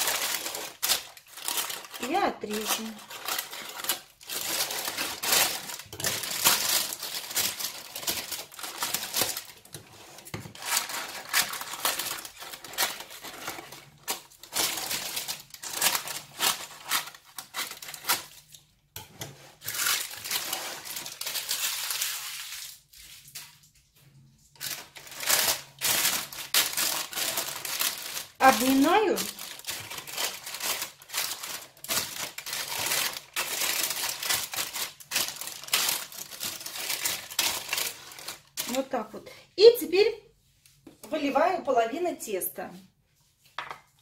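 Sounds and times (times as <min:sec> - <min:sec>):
parchment paper rustling: 0:00.0 - 0:39.2
scissors snipping paper: 0:10.5 - 0:18.5.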